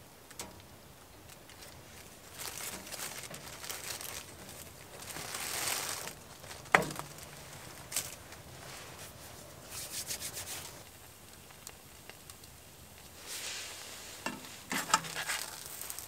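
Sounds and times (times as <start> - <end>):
plastic bag crinkling: 1.2 - 12.4, 13.0 - 16.0.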